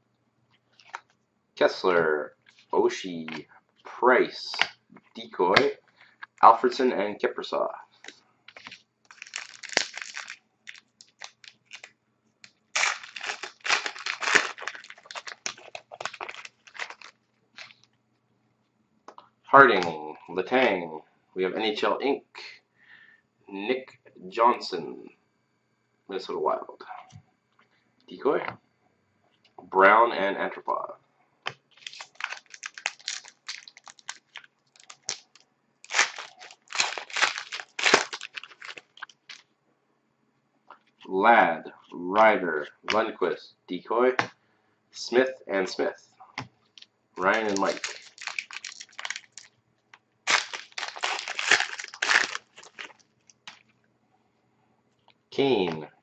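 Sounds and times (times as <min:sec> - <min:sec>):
cards being handled: 0:08.0 - 0:11.9, 0:12.8 - 0:17.8, 0:31.5 - 0:39.4, 0:47.2 - 0:49.5, 0:50.3 - 0:53.6
foil wrapper tearing and crinkling: 0:08.6 - 0:11.9, 0:12.7 - 0:17.8, 0:31.7 - 0:39.4, 0:47.2 - 0:49.5, 0:50.3 - 0:53.6.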